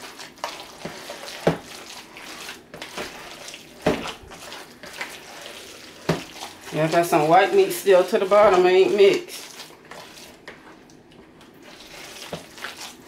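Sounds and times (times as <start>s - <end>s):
hand squelching wet salad: 0.0s - 13.0s.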